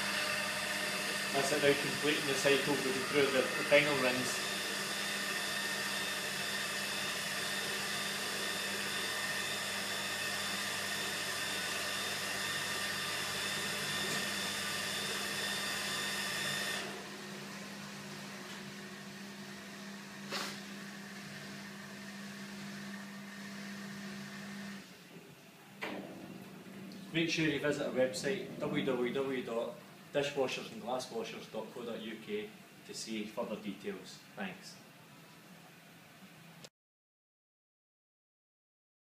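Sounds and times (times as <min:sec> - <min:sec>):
dishwasher motor and pump whine: 0:00.0 - 0:30.1.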